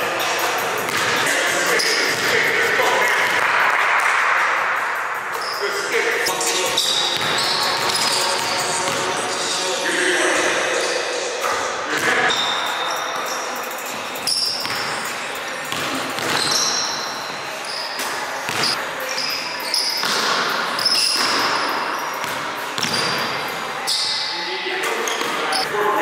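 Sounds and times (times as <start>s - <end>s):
sneaker squeaks: 5.4s - 5.7s, 6.7s - 9.1s, 10.8s - 25.7s.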